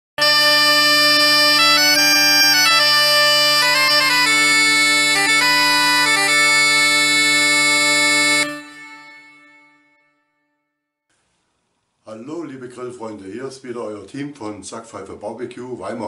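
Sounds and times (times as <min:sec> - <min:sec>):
bagpipe music: 0:00.2 - 0:10.3.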